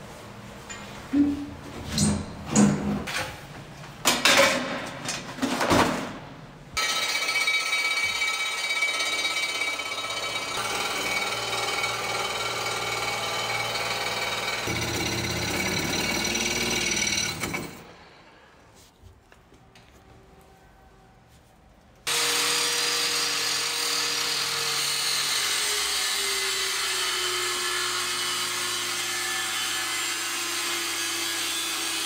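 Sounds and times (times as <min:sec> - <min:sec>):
power tool buzzing: 0:09.2 - 0:17.8, 0:22.1 - 0:32.0.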